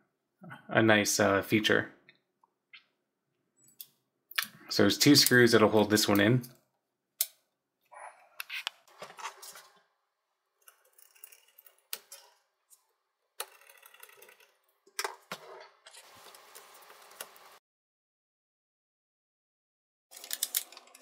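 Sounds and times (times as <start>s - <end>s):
screwdriver clicks and scrapes: 10.6s - 17.3s.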